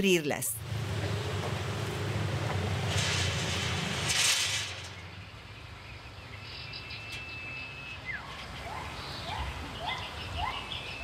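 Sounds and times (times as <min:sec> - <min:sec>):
chain-link gate scraping and rattling: 0:02.7 - 0:05.2.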